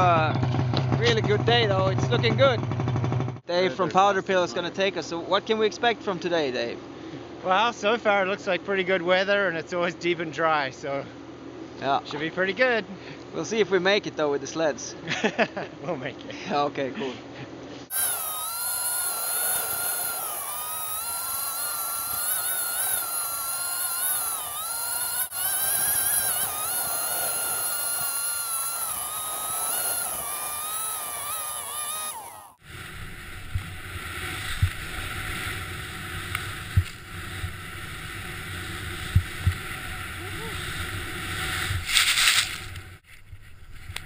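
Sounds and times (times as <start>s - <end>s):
snowmobile engine revving: 17.9s - 42.5s.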